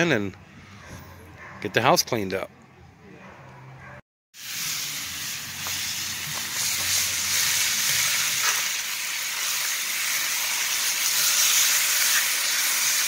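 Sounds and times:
steaks sizzling in a skillet: 4.4s - 13.0s.

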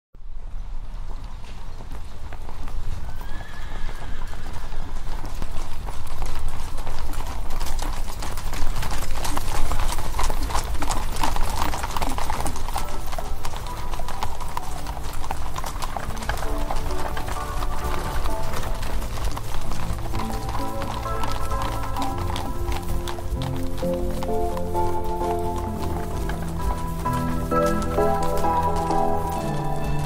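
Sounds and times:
horse hooves clip-clopping: 0.2s - 30.0s
horse whinny: 3.1s - 5.1s.

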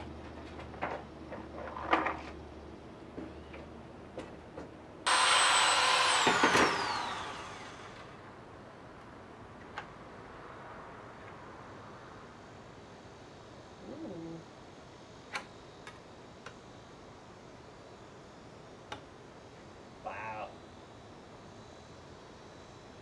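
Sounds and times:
power drill whining: 5.1s - 8.2s.

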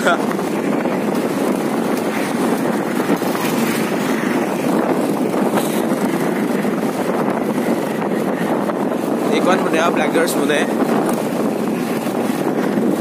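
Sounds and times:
road noise: 0.0s - 13.0s
wind rushing: 0.0s - 13.0s
motorcycle engine: 0.1s - 9.2s.

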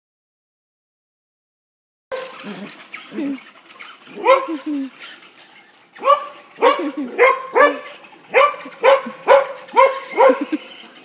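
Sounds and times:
dog barking: 4.1s - 4.8s, 6.0s - 10.6s.

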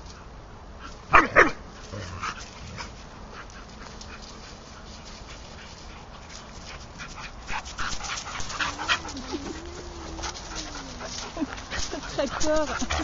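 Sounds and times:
dog barking: 1.1s - 1.6s.

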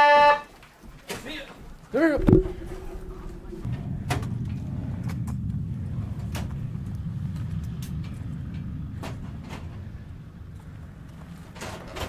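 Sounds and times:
steady low rumble: 1.8s - 12.0s.

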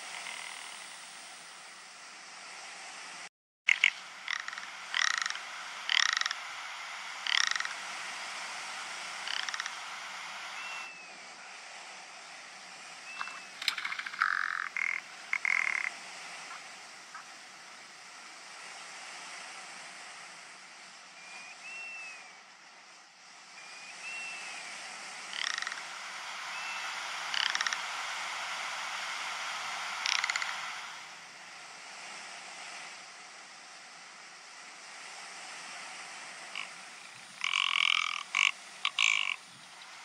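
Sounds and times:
bird croaking rattle calls: 0.0s - 1.0s, 3.7s - 7.9s, 9.1s - 11.0s, 13.1s - 17.2s, 25.2s - 28.1s, 29.9s - 30.9s, 36.6s - 40.0s
steady hiss: 0.0s - 40.0s.

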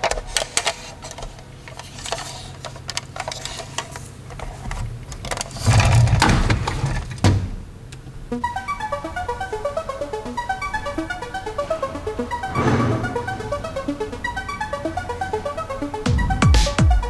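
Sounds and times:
toy truck wheels rumbling: 0.0s - 7.2s.

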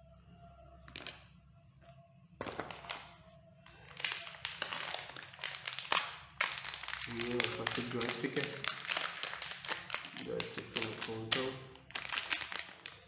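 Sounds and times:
metallic plastic bag crinkling: 3.7s - 13.0s.

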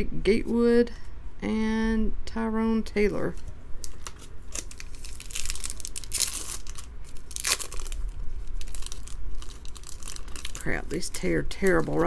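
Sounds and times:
foil wrapper crinkling and tearing: 3.8s - 12.0s.

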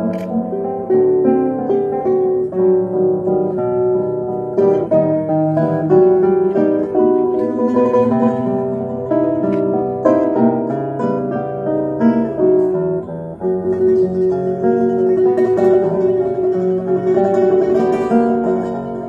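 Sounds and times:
classical guitars playing: 0.0s - 19.0s.

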